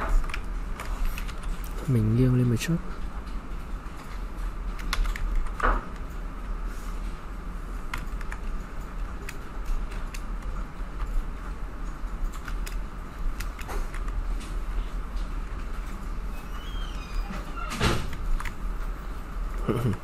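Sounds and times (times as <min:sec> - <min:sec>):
low electrical hum: 0:00.0 - 0:20.0
mouse and keyboard clicks: 0:09.2 - 0:10.5, 0:12.2 - 0:12.8, 0:13.4 - 0:14.5.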